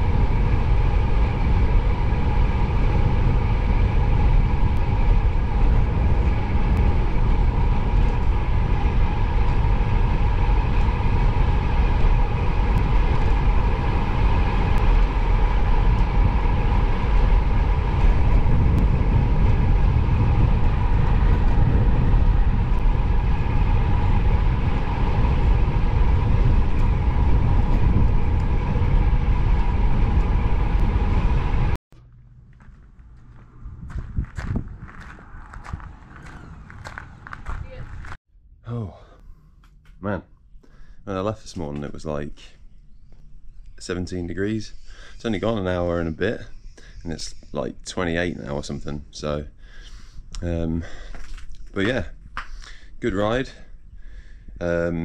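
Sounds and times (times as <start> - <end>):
wind rushing over microphone: 0.0 - 31.8, 33.0 - 38.2, 40.9 - 55.0
tyres rolling on asphalt: 0.0 - 38.2
steady hum: 0.0 - 55.0.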